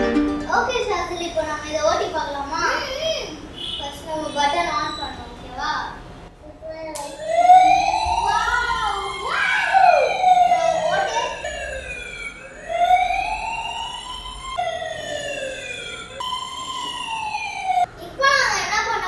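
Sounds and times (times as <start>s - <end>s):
toy electronic siren wailing: 7.0s - 17.9s.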